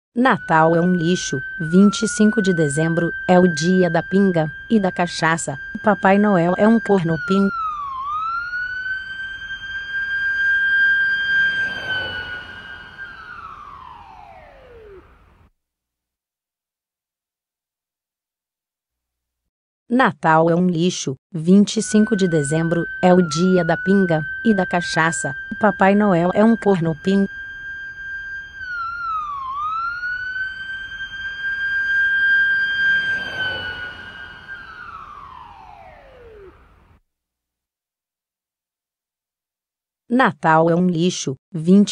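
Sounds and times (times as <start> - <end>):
ambulance siren wailing: 0.2 - 15.4, 21.5 - 36.9.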